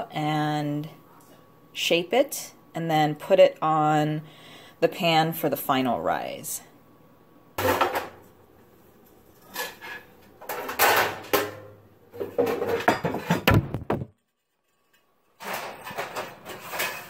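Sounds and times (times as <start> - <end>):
camera falling with heavy thud: 13.4 - 14.1.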